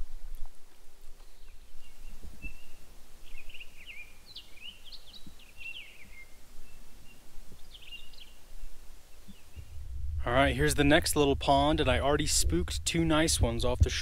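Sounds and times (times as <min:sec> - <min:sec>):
songbirds chirping and twittering: 0:00.0 - 0:13.8
low background rumble: 0:09.5 - 0:14.0.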